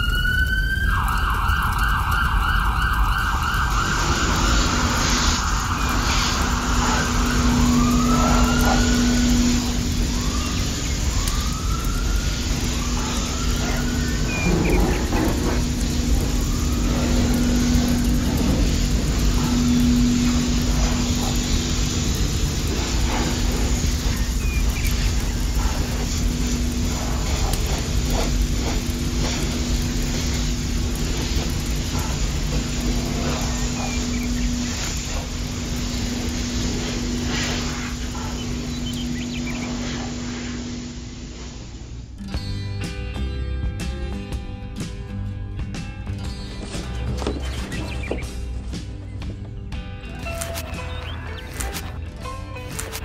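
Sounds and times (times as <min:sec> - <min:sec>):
siren sweeps: 0:00.0 - 0:41.4
constant hiss: 0:00.0 - 0:42.3
low electric hum: 0:04.0 - 0:42.3.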